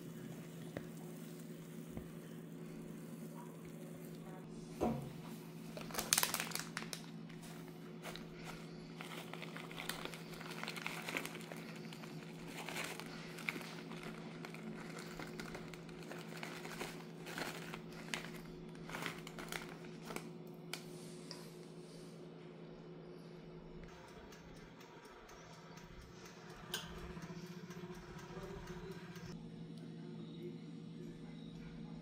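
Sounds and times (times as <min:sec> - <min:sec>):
wrapper crinkling: 0:05.6 - 0:20.8.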